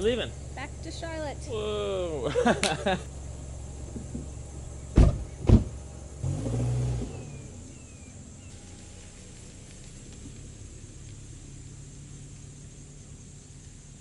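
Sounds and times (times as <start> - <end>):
car engine starting and running: 0.0 - 14.0
car doors slamming: 3.8 - 7.4.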